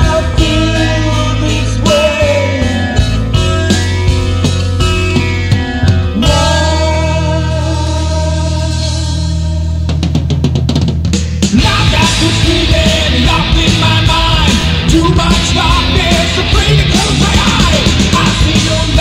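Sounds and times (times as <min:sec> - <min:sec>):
metal band playing: 0:00.0 - 0:19.0.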